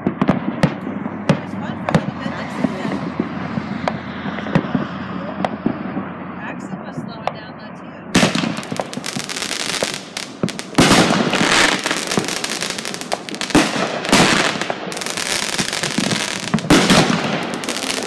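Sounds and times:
firework bangs: 0.0s - 7.5s, 8.1s - 18.0s
firework crackling and popping: 8.2s - 18.0s.

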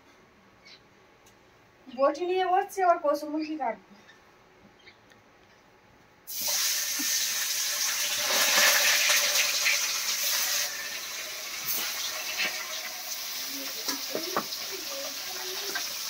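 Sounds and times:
fish sizzling in hot oil: 6.3s - 16.0s.

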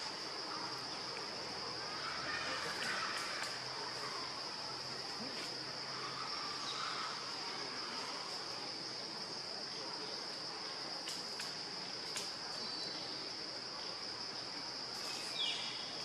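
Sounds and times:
forest ambience: 0.0s - 16.0s
insects buzzing: 0.0s - 16.0s
faint clicks: 11.0s - 12.4s.

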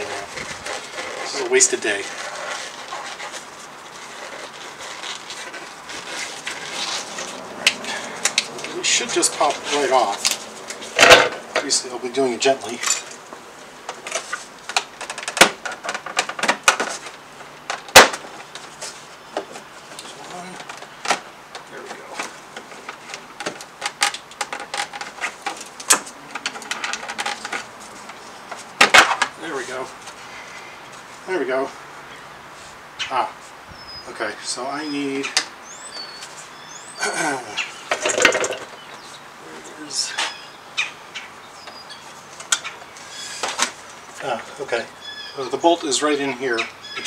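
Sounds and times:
rubber gloves rustling and snapping: 0.0s - 11.7s, 12.6s - 30.2s
steady outdoor hiss: 0.0s - 47.0s.

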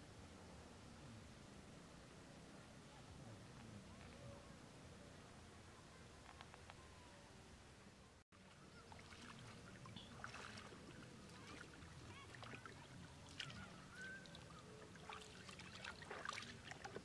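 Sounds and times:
flowing water rushing: 8.4s - 17.0s
feet splashing in water: 8.8s - 17.0s.

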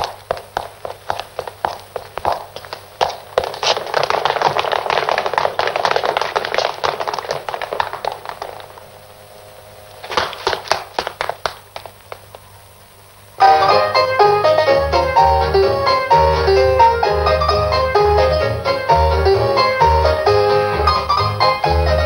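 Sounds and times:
scattered taps: 0.0s - 8.9s, 10.0s - 12.4s
crowd running footsteps on pavement: 0.0s - 9.2s, 9.9s - 12.5s
piano music: 13.4s - 22.0s.

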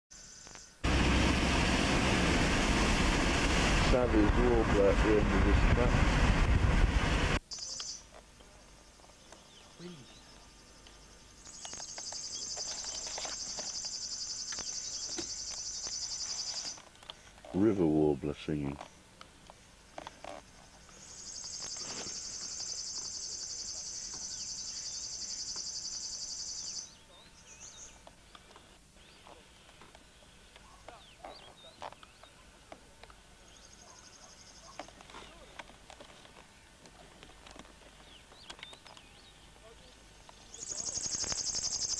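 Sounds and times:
birds chirping: 7.4s - 41.9s
bird buzzing song: 7.5s - 16.9s, 20.1s - 32.5s, 33.4s - 35.6s, 37.9s - 41.9s.

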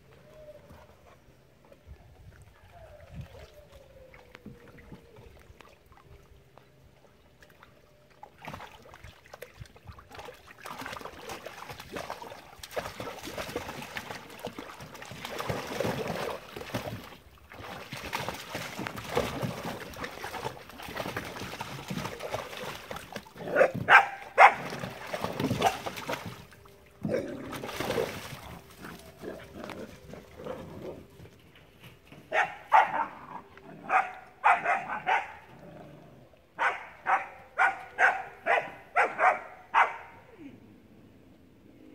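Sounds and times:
puppies splashing in water: 0.1s - 31.5s
high puppy barks: 23.5s - 24.6s, 32.3s - 33.2s, 33.9s - 35.5s, 36.6s - 40.2s.

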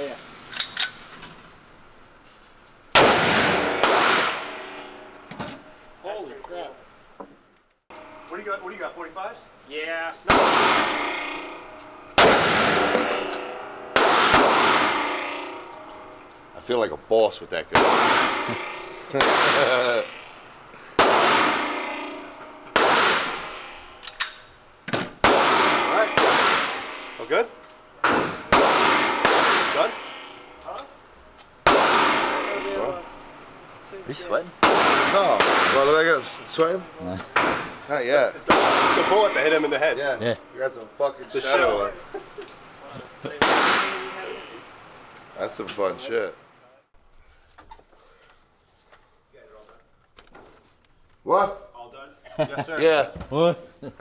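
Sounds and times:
pistol shots echoing indoors: 3.0s - 5.3s, 10.3s - 16.2s, 17.8s - 20.3s, 21.0s - 24.2s, 25.2s - 27.2s, 28.0s - 30.6s, 31.6s - 32.8s, 34.6s - 36.4s, 38.5s - 39.4s.

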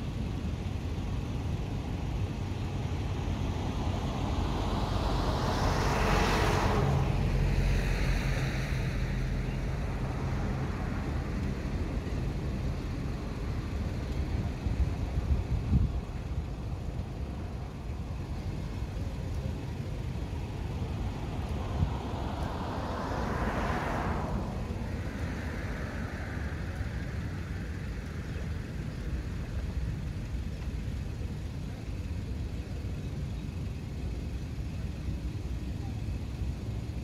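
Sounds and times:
low outdoor rumble: 0.0s - 37.0s
vehicle passing by: 3.4s - 13.9s, 18.8s - 30.1s.

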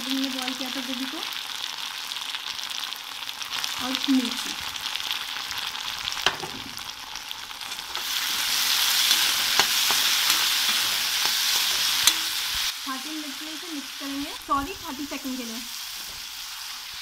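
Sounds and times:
vegetables sizzling in a pan: 0.0s - 17.0s
spatula scraping a pan: 7.6s - 12.7s.

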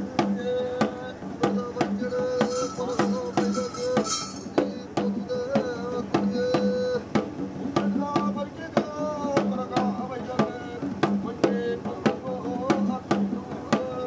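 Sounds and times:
drums beating: 0.0s - 14.0s
metallic jingling: 2.4s - 4.6s.

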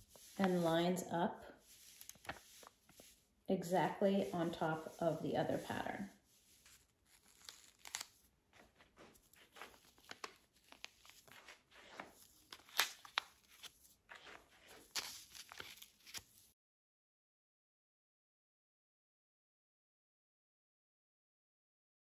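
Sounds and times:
paper crinkling and rustling: 1.6s - 3.2s, 4.2s - 16.6s
sharp paper crackle: 1.7s - 3.1s, 6.5s - 16.5s.

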